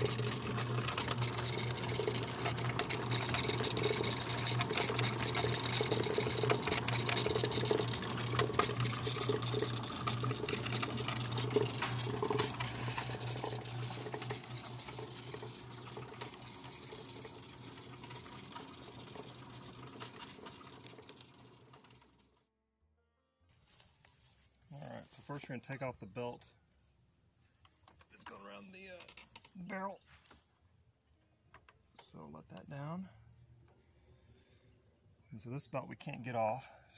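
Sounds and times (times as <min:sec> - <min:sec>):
tumbler clattering: 0:00.0 - 0:21.8
electric motor and belt drive humming: 0:00.0 - 0:22.4.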